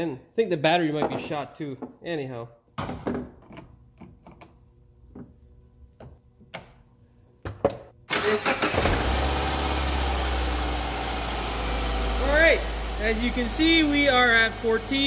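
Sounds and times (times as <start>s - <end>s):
car engine cranking and idling: 8.1s - 15.0s.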